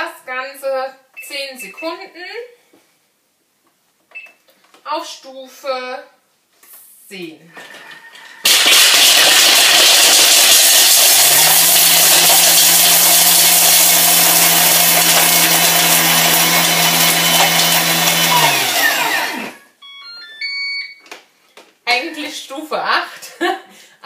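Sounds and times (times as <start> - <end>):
food processor blade chopping: 8.4 - 19.6
motor winding down: 8.6 - 19.6.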